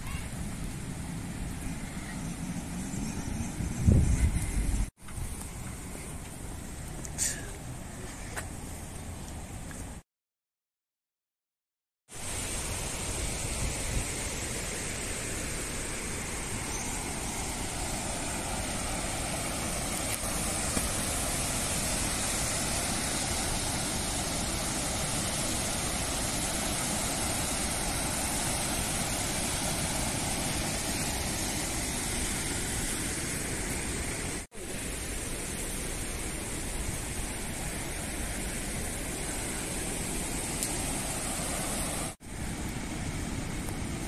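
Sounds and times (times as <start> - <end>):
water rushing from dam gates: 12.2 - 44.0.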